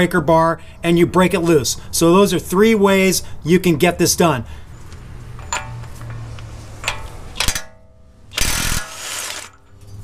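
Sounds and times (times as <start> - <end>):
impact wrench hammering: 5.4 - 6.2, 6.8 - 9.7.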